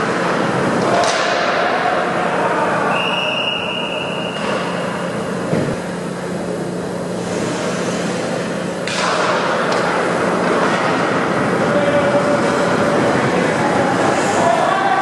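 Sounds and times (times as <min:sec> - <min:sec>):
referee's whistle: 0:02.9 - 0:04.5
skates and sticks scraping: 0:07.2 - 0:14.7.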